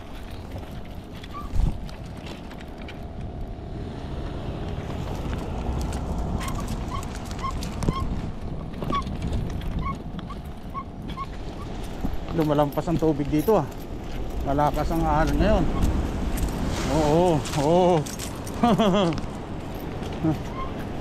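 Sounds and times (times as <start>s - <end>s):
small regular squeak: 1.2s - 1.7s, 6.4s - 8.2s, 20.3s - 20.9s
cart wheels rumbling on concrete: 4.6s - 21.0s.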